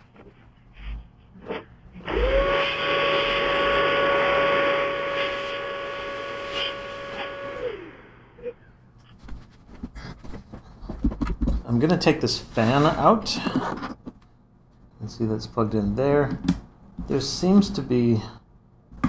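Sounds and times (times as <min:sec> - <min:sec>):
vacuum cleaner whine: 0:02.0 - 0:08.5.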